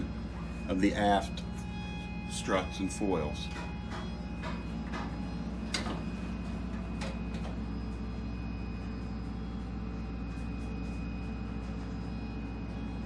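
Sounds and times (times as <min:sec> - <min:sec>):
low machinery hum: 0:00.0 - 0:13.0
thin high whine: 0:00.0 - 0:13.0.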